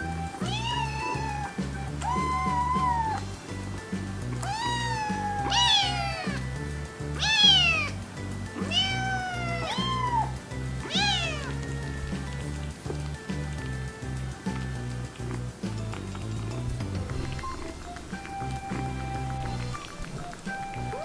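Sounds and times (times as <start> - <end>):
background music with steady beat: 0.0 - 21.0
kitten meowing: 0.4 - 3.2, 4.4 - 6.5, 7.2 - 8.0, 8.6 - 12.3.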